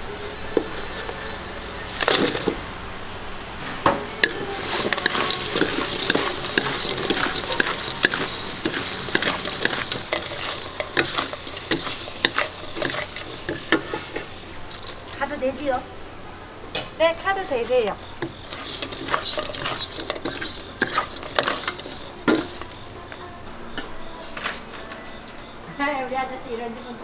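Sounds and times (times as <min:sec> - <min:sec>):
spatula scraping and knocking wok: 0:00.0 - 0:02.6, 0:03.8 - 0:15.8, 0:18.0 - 0:23.2
sauce sizzling: 0:00.0 - 0:23.5.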